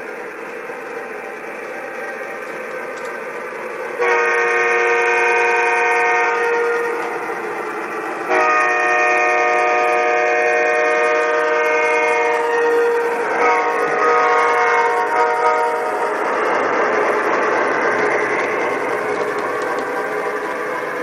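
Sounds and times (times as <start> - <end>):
train running noise: 0.0 - 21.0
model locomotive horn blasts: 4.0 - 7.1, 8.3 - 16.0.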